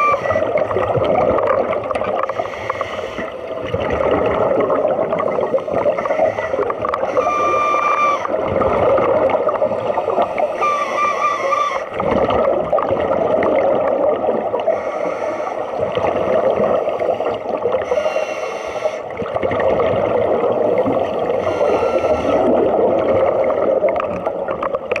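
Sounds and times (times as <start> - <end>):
underwater bubbling and gurgling: 0.0 - 25.0
hissing breath through regulator: 2.2 - 3.5, 5.7 - 8.3, 9.6 - 11.9, 14.7 - 19.1, 20.8 - 22.6.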